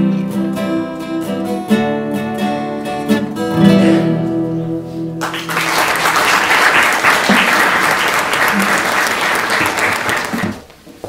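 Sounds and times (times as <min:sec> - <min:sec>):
acoustic guitar chords: 0:00.0 - 0:06.4
audience applause: 0:05.2 - 0:10.7.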